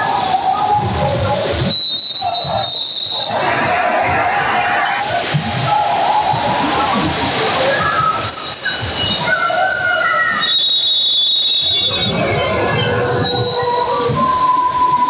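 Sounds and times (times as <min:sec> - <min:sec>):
crowd chatter: 0:00.0 - 0:15.0
players shouting: 0:00.0 - 0:15.0.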